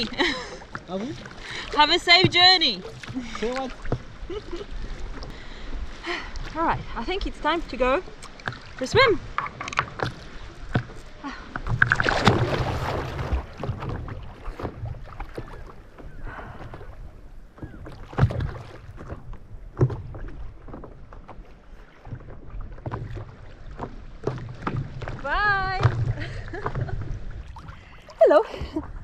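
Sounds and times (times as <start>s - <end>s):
water lapping against board: 0.0s - 29.0s
loud splash into water: 11.8s - 13.9s.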